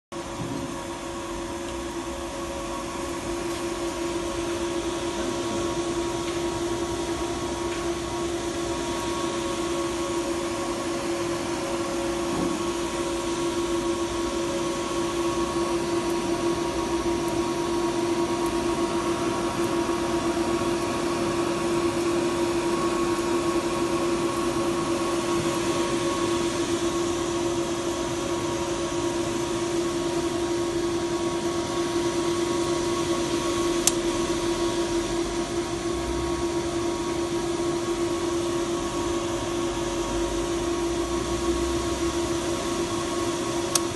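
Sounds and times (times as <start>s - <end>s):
electronic equipment hum: 0.1s - 43.9s
fan-like whirring: 0.1s - 43.9s
sharp click: 33.8s - 34.0s.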